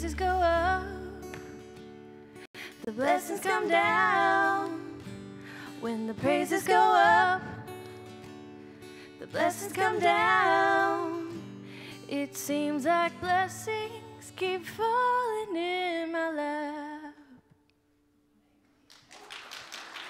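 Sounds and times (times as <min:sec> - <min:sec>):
woman singing worship song: 0:00.0 - 0:01.3, 0:02.6 - 0:07.8, 0:09.2 - 0:17.4
acoustic guitar and keyboard: 0:00.0 - 0:14.3
applause: 0:18.8 - 0:20.0.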